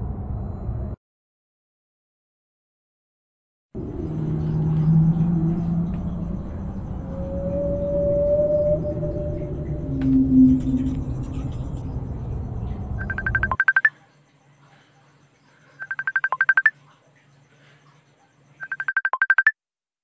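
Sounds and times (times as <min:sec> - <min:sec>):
dark ambient music: 0:03.8 - 0:13.6
video call tone beeps: 0:13.0 - 0:13.9, 0:15.8 - 0:16.7, 0:18.6 - 0:19.5.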